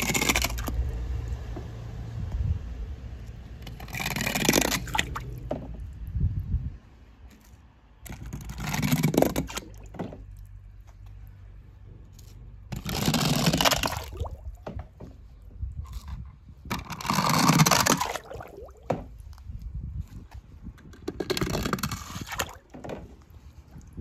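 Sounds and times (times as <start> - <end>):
toy car dropping into water: 3.6 - 5.4, 8.1 - 10.3.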